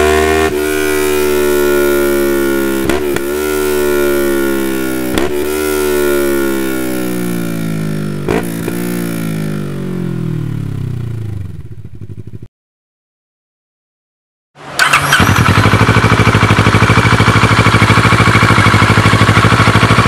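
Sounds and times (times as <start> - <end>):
motorcycle engine revs falling: 0.0 - 12.5.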